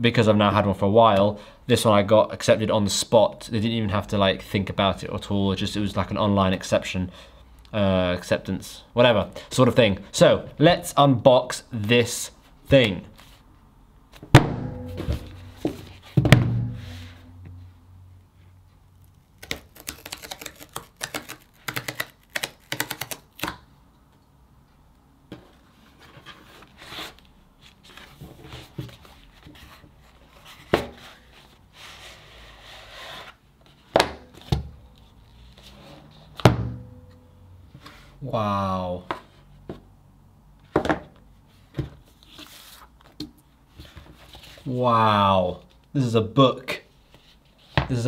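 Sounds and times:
box knocking down: 0:14.4 - 0:17.2
cardboard tearing: 0:19.4 - 0:23.5.

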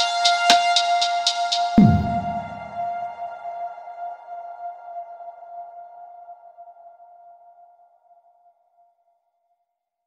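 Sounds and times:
background music held note: 0:01.8 - 0:03.0.

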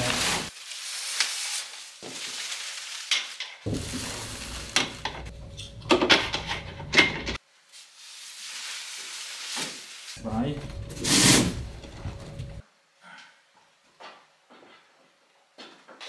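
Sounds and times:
plastic wrap and cardboard rustling: 0:00.0 - 0:06.3, 0:07.3 - 0:12.6
knocks and clatters: 0:04.7 - 0:07.4.

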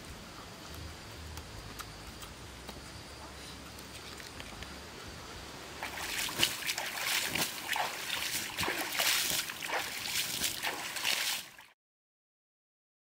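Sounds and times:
water splashing on ashes: 0:05.8 - 0:11.7.

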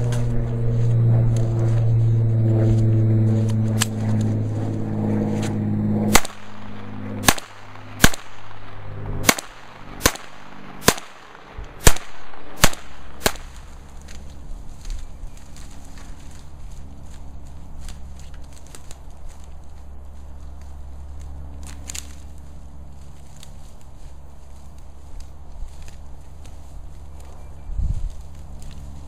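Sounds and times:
steady low hum: 0:00.0 - 0:29.0
handgun shots: 0:06.1 - 0:13.6.

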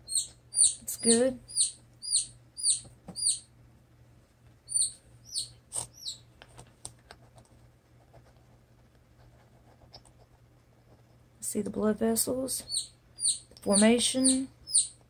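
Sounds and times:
chicks peeping: 0:00.0 - 0:03.5, 0:04.7 - 0:06.3, 0:12.6 - 0:15.0
low steady hum: 0:00.0 - 0:15.0.

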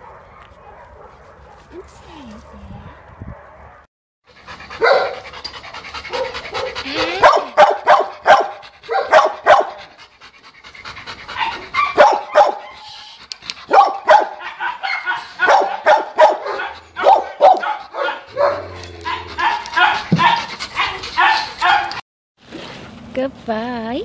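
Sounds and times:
dogs barking: 0:00.0 - 0:01.6, 0:02.8 - 0:10.0, 0:11.3 - 0:12.8, 0:13.6 - 0:22.0.

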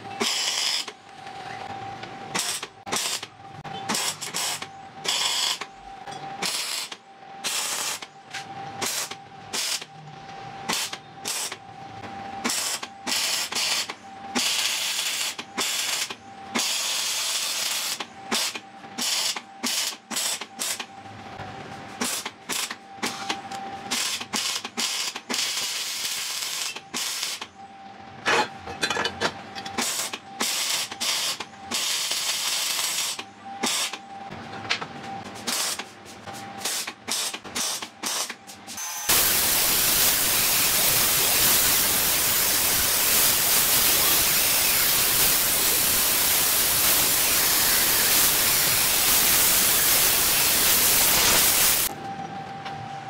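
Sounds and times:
welding arc crackling: 0:00.2 - 0:00.9, 0:02.4 - 0:03.3, 0:03.9 - 0:05.7, 0:06.4 - 0:08.1, 0:08.8 - 0:09.9, 0:10.7 - 0:11.6, 0:12.4 - 0:20.9, 0:22.0 - 0:22.8, 0:23.9 - 0:27.5, 0:29.8 - 0:34.0, 0:35.4 - 0:35.9, 0:39.1 - 0:51.9.

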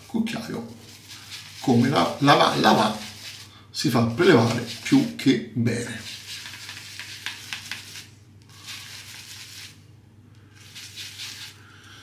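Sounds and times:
shaving brush swishing on soap: 0:00.0 - 0:09.9, 0:10.5 - 0:11.7.

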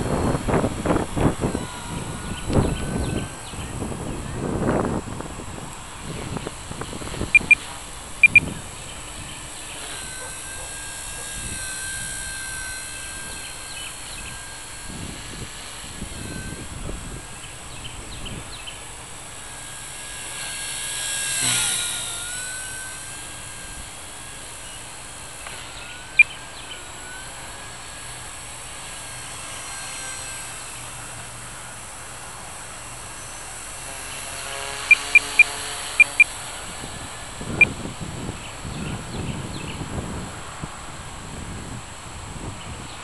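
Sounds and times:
wind on microphone: 0:00.0 - 0:19.2, 0:34.4 - 0:43.0
rc helicopter rotor whine: 0:00.0 - 0:43.0
short sharp chirps: 0:07.3 - 0:07.6, 0:08.2 - 0:08.4.

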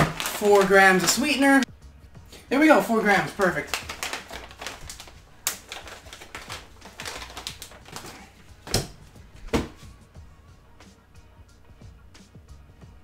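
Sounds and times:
plastic pouch crinkling: 0:00.0 - 0:01.6, 0:02.7 - 0:09.0.

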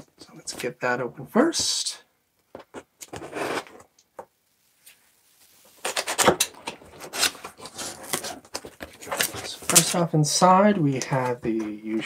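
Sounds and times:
cardboard flaps rustling and scraping: 0:05.9 - 0:10.1.

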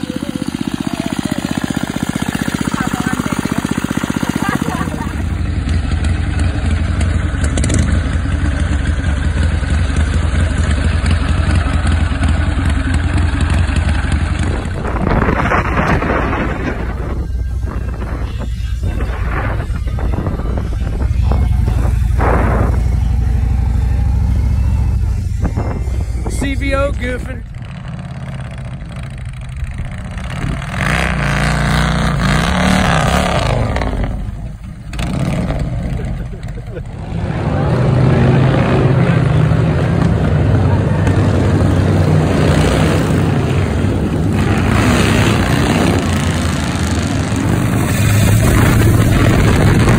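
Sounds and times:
motorcycle engine running: 0:00.0 - 0:49.9.

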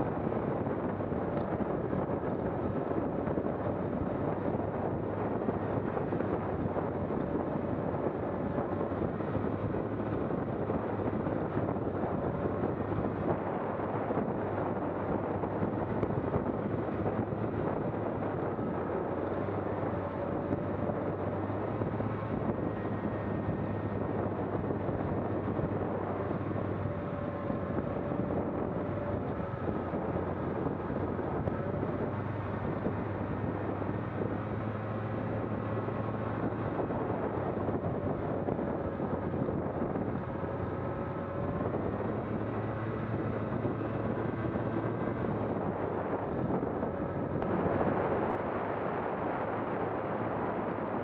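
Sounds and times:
vehicle engine running: 0:00.0 - 0:51.0
wind and travel noise: 0:00.0 - 0:51.0.

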